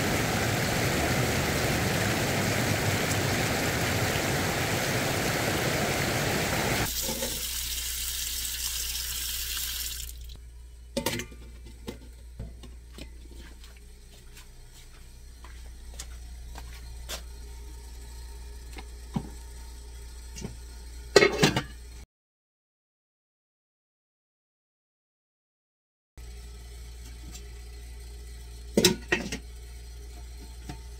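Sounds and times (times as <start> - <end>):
river water rushing: 0.0 - 6.9
water pouring into metal pot: 6.8 - 10.4.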